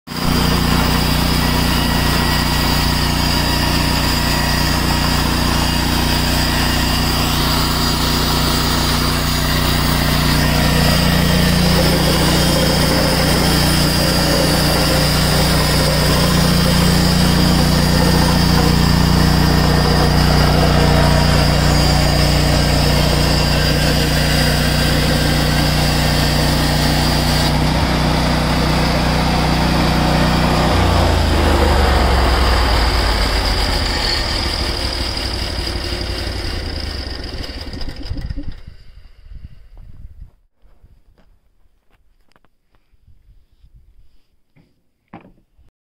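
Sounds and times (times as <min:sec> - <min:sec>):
band saw blade cutting wood: 0:00.1 - 0:38.2
sawmill engine running: 0:00.1 - 0:39.1.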